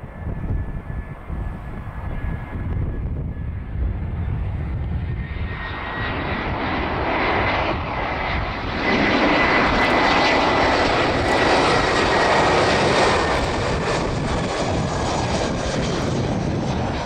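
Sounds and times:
jet engines on approach: 0.0s - 17.0s.

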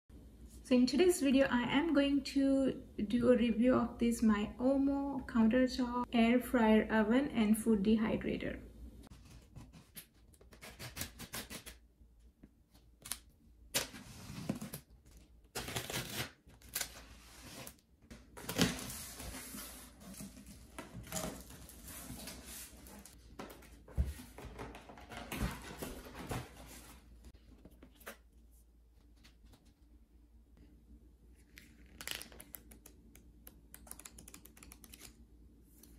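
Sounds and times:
knife slitting packing tape: 10.5s - 11.8s, 15.6s - 16.8s
tape tearing: 15.5s - 17.0s
cardboard and packing rustling: 17.5s - 28.1s.

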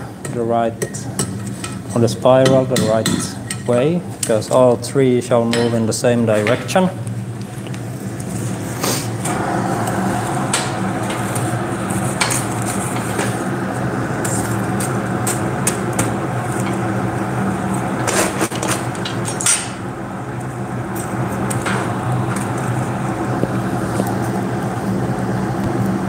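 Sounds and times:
forge air blower humming: 0.0s - 26.0s.

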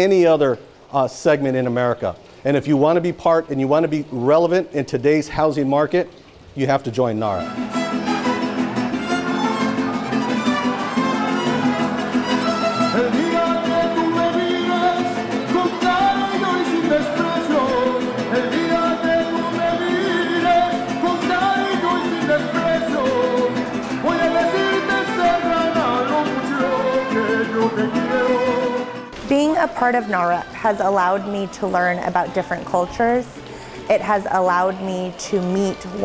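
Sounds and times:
violins playing melody: 7.4s - 13.2s
strummed guitars: 7.4s - 33.9s.

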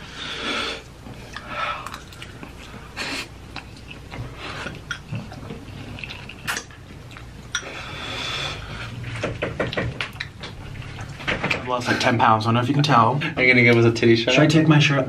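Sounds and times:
chewing: 0.8s - 9.2s, 10.0s - 11.3s.

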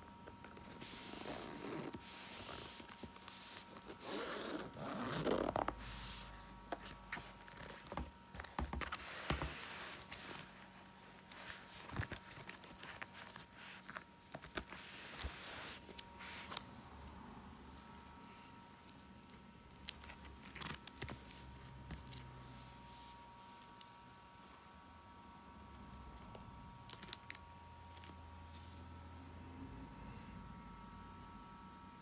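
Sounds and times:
plastic pages rustling: 0.0s - 16.7s, 18.8s - 22.6s, 26.3s - 28.2s
binder zipper unzipping: 1.1s - 2.7s, 3.9s - 5.9s.

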